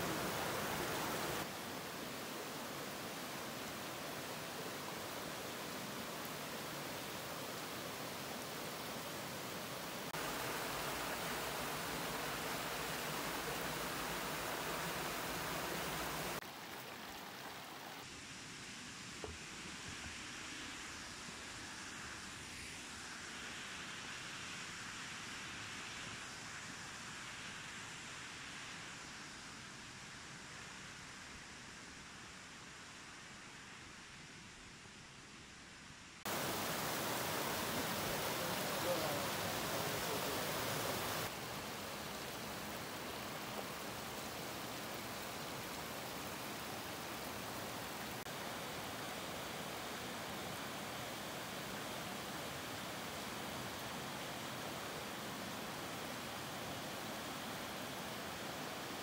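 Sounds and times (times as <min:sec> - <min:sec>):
stream running over stones: 0:00.0 - 0:18.2, 0:36.3 - 0:59.0
small waterfall rushing: 0:00.0 - 0:59.0.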